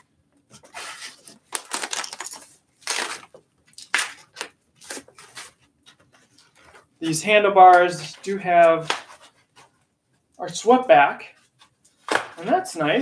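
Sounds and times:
packing wrap rustling and crinkling: 0.8 - 6.8.

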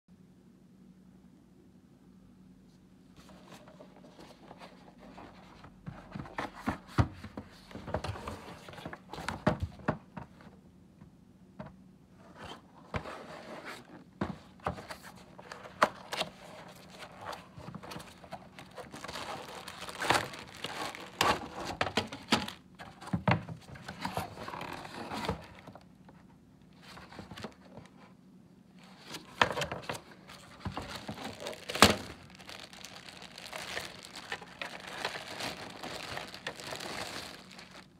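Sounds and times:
cardboard scraping and rustling: 3.2 - 10.5, 12.2 - 25.8, 28.8 - 37.9
plastic wrapping crinkling: 15.4 - 22.9, 28.8 - 37.9.

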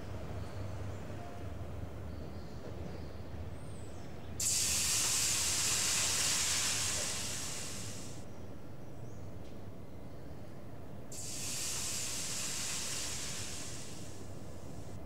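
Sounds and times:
water hissing into steam: 4.4 - 8.2, 11.1 - 14.9.

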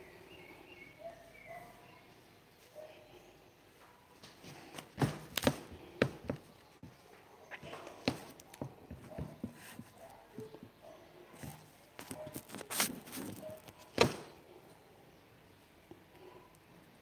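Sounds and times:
handling knocks and taps: 7.6 - 14.2.

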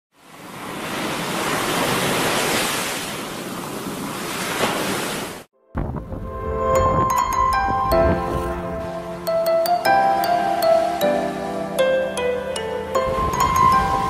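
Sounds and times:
ocean waves washing: 0.1 - 14.0
music with sustained notes: 5.6 - 14.0.

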